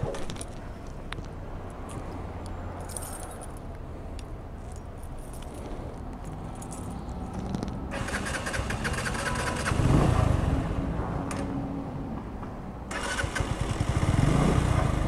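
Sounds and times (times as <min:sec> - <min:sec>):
metallic jangling rattle: 0:02.8 - 0:03.7, 0:04.6 - 0:07.6
motorcycle engine running: 0:13.2 - 0:15.0.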